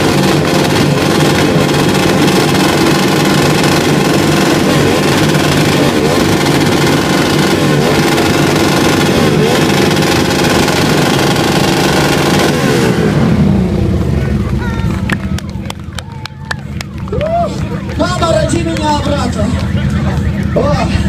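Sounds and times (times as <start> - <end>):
motorcycles revving: 0.0 - 21.0.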